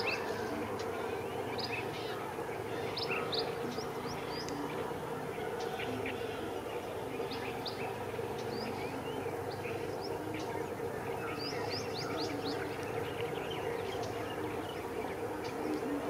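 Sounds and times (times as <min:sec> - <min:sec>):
small birds chirping and whistling: 0:07.1 - 0:16.0.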